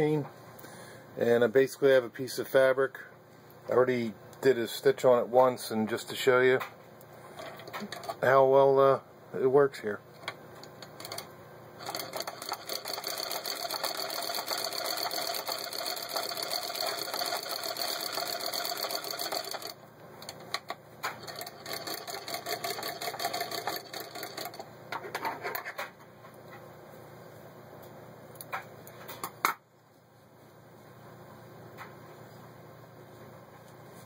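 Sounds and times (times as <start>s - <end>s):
sewing machine clicking: 10.8s - 24.7s
hand-crank sewing machine clatter: 11.0s - 19.8s, 21.1s - 25.6s.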